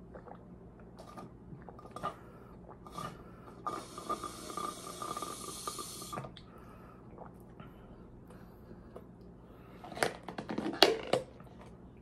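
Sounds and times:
person gulping: 0:00.0 - 0:05.5, 0:06.1 - 0:07.8.

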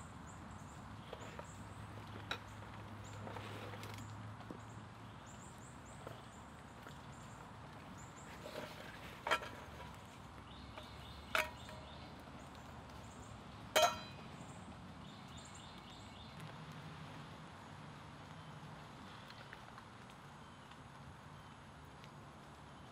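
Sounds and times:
birds chirping: 0:00.0 - 0:16.6
metallic clinks of grill and pan: 0:10.7 - 0:12.0, 0:13.7 - 0:14.3.

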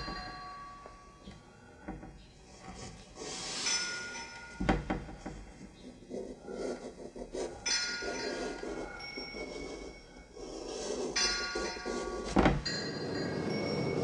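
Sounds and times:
metal struck and ringing: 0:07.6 - 0:09.5.

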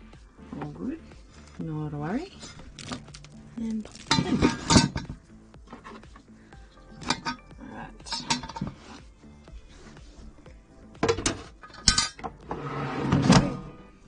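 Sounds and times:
basket sliding with scrape: 0:12.5 - 0:13.9.

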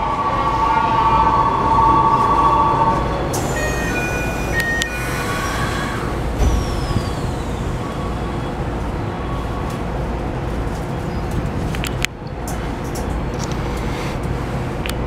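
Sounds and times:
train jolt: 0:00.0 - 0:10.0
low train running rumble: 0:00.0 - 0:15.0.

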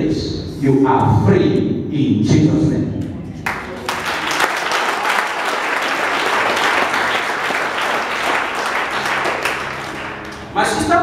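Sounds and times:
crowd applauding: 0:03.4 - 0:11.0.

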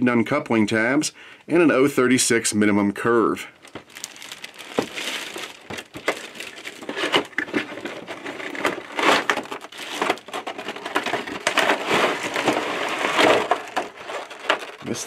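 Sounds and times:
plastic wrapping crinkling: 0:03.6 - 0:15.0
cardboard box scraping: 0:03.9 - 0:14.6.

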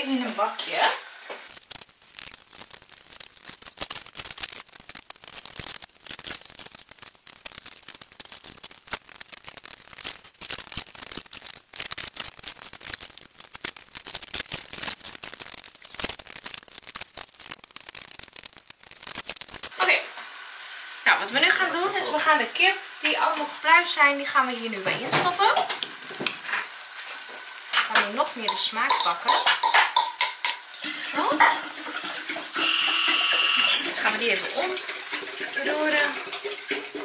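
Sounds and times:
cutlery scraping a ceramic plate: 0:28.5 - 0:30.6.

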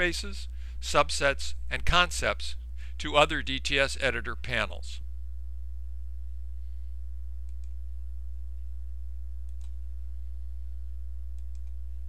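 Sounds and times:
low electrical hum: 0:00.0 - 0:12.0
computer mouse clicking: 0:07.5 - 0:07.8, 0:09.5 - 0:09.8, 0:11.4 - 0:11.8.

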